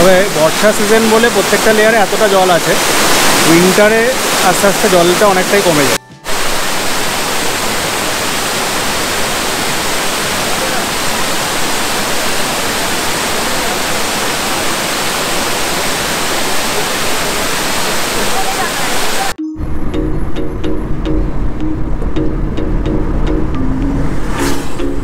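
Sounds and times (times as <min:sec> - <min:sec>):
waterfall rushing: 0:00.0 - 0:19.4.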